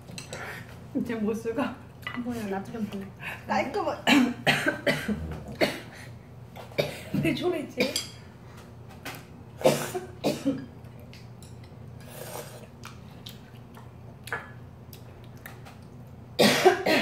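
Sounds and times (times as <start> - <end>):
woman coughing: 4.0 - 6.0, 6.8 - 7.2, 7.8 - 8.1, 9.6 - 10.7, 16.4 - 17.0.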